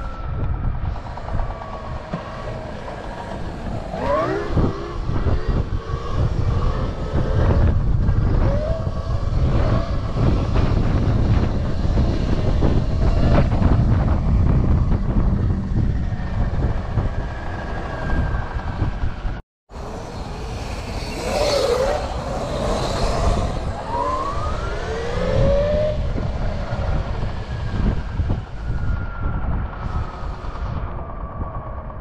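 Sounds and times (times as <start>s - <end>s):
electric dirt bike motors whining: 0.0s - 31.9s
wind buffeting microphone: 0.0s - 32.0s.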